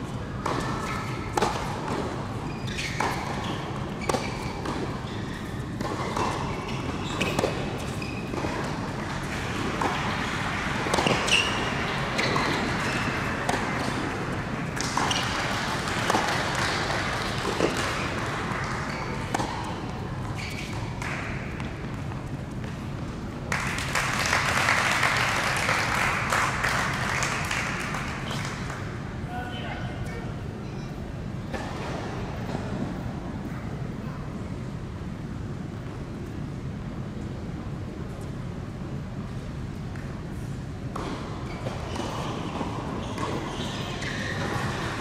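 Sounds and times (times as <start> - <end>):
background hum in large hall: 0.0 - 45.0
tennis ball bouncing: 0.4 - 2.2, 2.9 - 22.8, 40.9 - 43.4
tennis ball hit by rackets: 0.4 - 2.2, 5.8 - 22.8.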